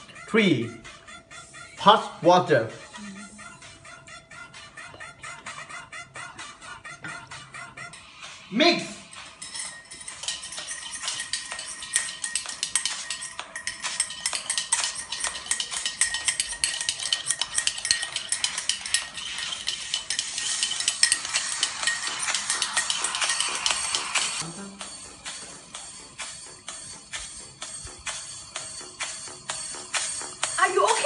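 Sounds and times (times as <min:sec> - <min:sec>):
cocktail shaker being shaken: 0:08.0 - 0:24.6
spoon stirring in a cup: 0:09.0 - 0:24.4.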